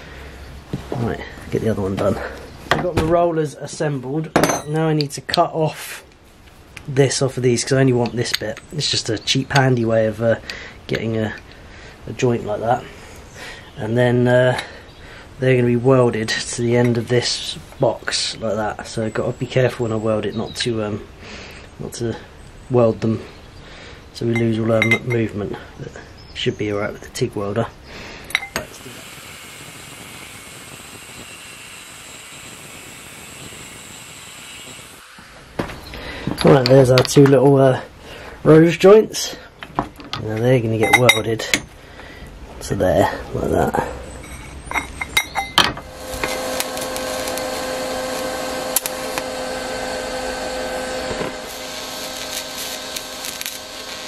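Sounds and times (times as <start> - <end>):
metal clinks: 24.4 - 25.2, 28.3 - 28.6, 44.2 - 45.8
angle grinder cutting steel: 28.3 - 35.5, 44.2 - 54.0
welding arc hissing: 28.3 - 36.8, 44.3 - 54.0
faint hum: 43.0 - 54.0.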